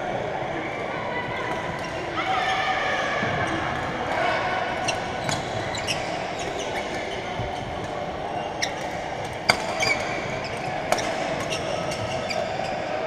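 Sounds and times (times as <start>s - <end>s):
murmur of voices: 0.0s - 13.0s
shoes squeaking on court: 4.8s - 13.0s.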